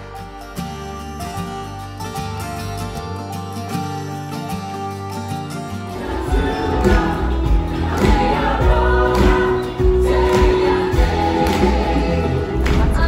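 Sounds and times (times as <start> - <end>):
cast singing together: 5.9 - 13.0
band with steady beat: 6.3 - 13.0.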